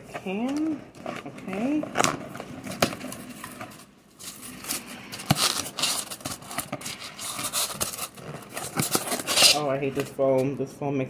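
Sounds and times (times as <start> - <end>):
cardboard and foam rustling: 0.1 - 10.5.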